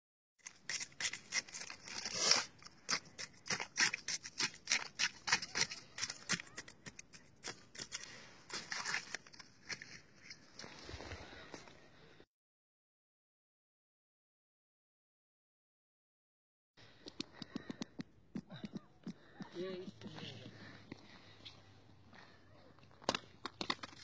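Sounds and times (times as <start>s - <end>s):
knife chipping at ice: 0.4s - 8.0s
knife scraping ice: 0.4s - 9.9s.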